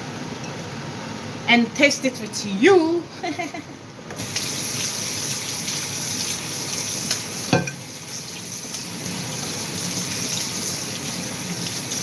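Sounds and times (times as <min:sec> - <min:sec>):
kitchen tap running: 0:04.2 - 0:12.0.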